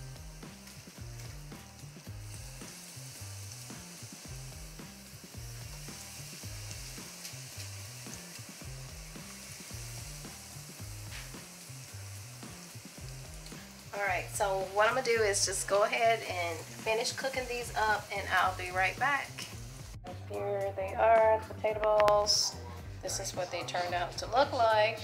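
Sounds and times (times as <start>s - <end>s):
food sizzling in hot oil: 0.0s - 20.0s, 23.1s - 25.0s
background music: 0.0s - 25.0s.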